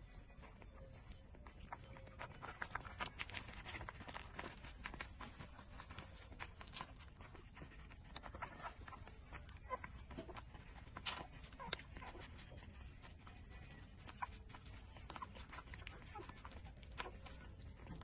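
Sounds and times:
puppies suckling: 0.0s - 18.0s.

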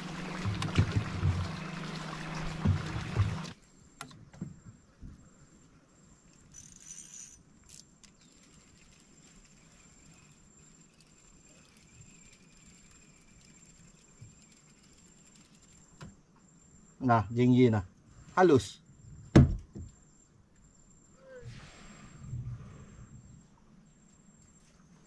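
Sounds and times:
outboard motor running: 0.0s - 3.6s
short hiss: 21.4s - 22.9s.

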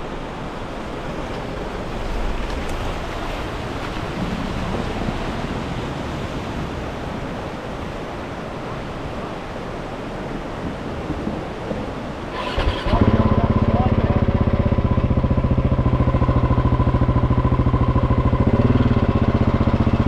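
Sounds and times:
river rushing over rocks: 0.0s - 12.5s.

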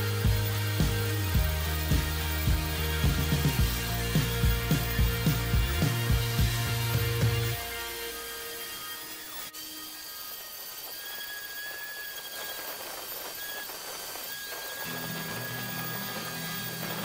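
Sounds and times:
music: 0.0s - 9.5s, 14.9s - 17.0s
orbital sander whirring: 0.0s - 17.0s.

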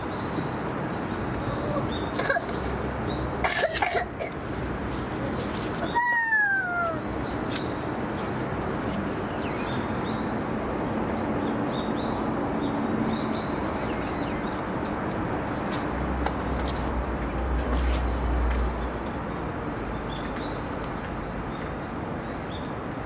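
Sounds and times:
small birds chirping: 0.0s - 3.4s, 4.5s - 16.7s.

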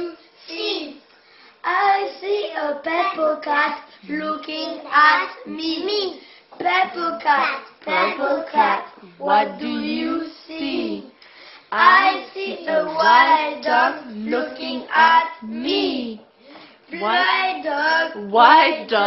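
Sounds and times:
children singing: 7.9s - 11.1s, 11.7s - 16.2s.

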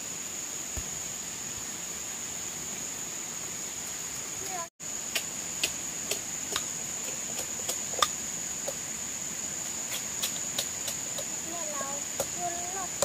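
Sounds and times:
high-pitched insect drone: 4.0s - 13.0s.

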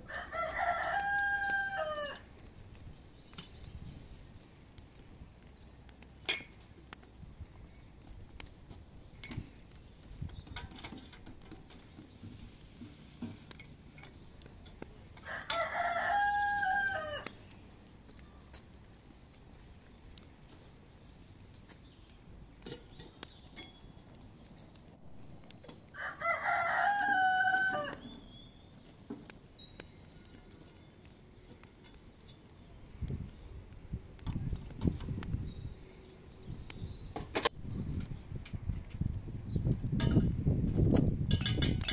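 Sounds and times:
rooster crowing: 0.1s - 2.3s, 15.2s - 17.3s, 26.0s - 28.0s.

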